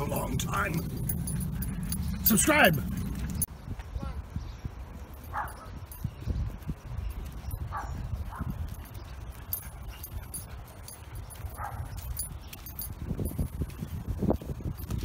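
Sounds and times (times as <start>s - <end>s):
steady low rumble: 0.0s - 14.9s
dog barking: 5.3s - 5.7s, 7.7s - 8.5s, 11.5s - 11.9s.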